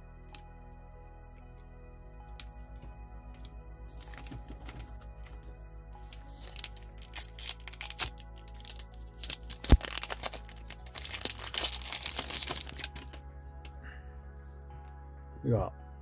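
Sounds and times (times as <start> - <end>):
soft background music with beat: 0.0 - 16.0
foil wrapper tearing and crinkling: 6.0 - 13.2.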